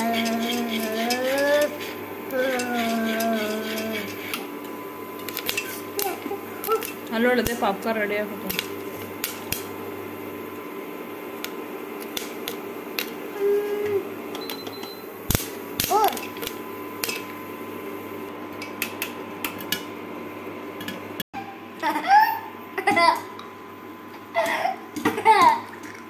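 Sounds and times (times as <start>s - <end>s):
steady hum: 0.0s - 14.4s
popcorn kernels popping in oil: 11.4s - 13.2s.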